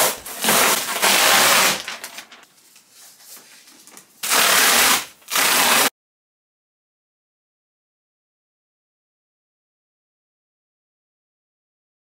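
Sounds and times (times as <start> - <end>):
cardboard scraping and rustling: 0.0 - 4.1.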